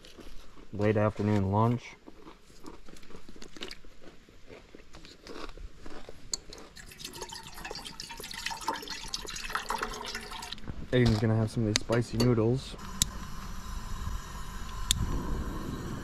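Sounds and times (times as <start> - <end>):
crunching tortilla chip: 2.0 - 6.8
water poured into metal pot: 6.8 - 10.6.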